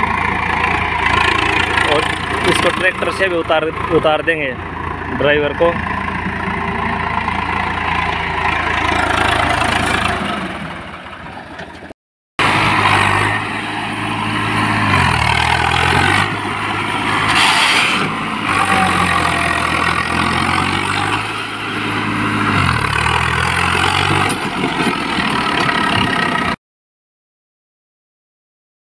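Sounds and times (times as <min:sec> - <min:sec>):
tractor diesel engine running: 0:00.0 - 0:26.6.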